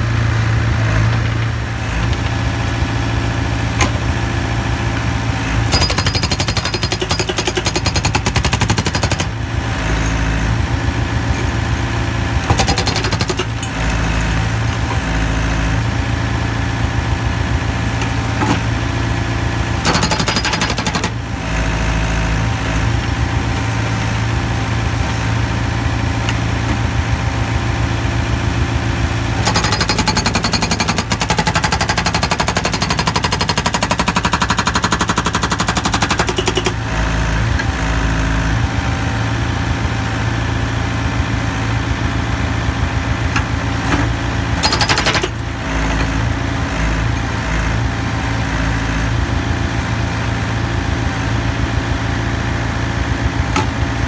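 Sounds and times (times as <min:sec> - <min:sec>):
diesel engine running: 0:00.0 - 0:54.0
hydraulic breaker hammering concrete: 0:05.6 - 0:09.5, 0:12.3 - 0:14.0, 0:19.8 - 0:21.2, 0:29.3 - 0:37.0, 0:44.5 - 0:47.2.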